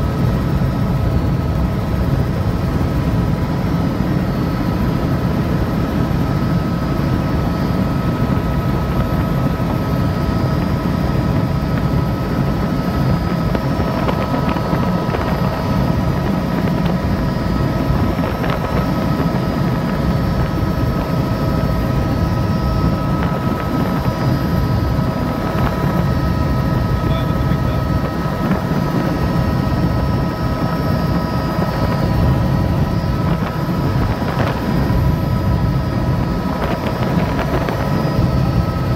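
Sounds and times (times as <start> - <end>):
helicopter drone: 0.0 - 38.9.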